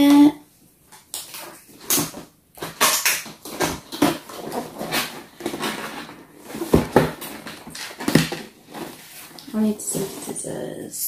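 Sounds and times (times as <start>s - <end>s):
cardboard box scraping: 3.6s - 10.6s
hands rubbing cardboard box: 8.6s - 10.6s.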